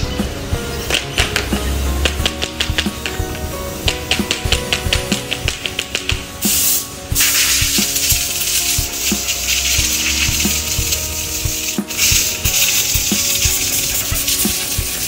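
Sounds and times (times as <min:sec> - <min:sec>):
compressed air hissing: 0:00.0 - 0:15.0.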